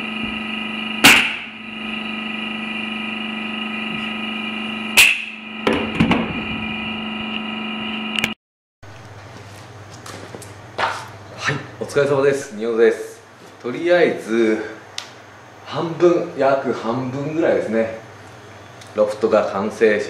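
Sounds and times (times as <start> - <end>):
steady hum: 0.0 - 20.0
pneumatic nailer bang: 1.0 - 1.6, 5.0 - 6.6.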